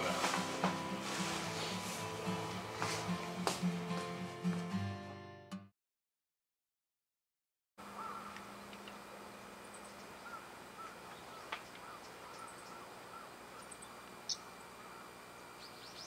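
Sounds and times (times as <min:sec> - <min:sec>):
birds chirping: 0:07.9 - 0:16.0.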